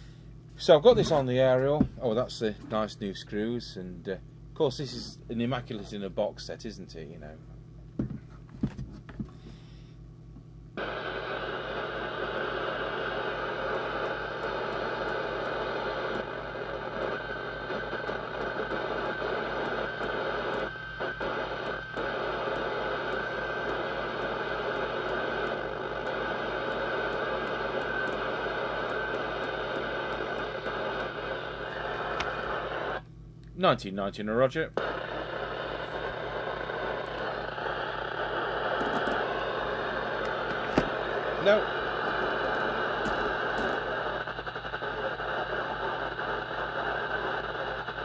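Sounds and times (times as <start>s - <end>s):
radio static hiss: 0.6s - 7.4s, 10.8s - 33.0s, 33.6s - 48.0s
low hum: 9.3s - 33.5s, 34.8s - 48.0s.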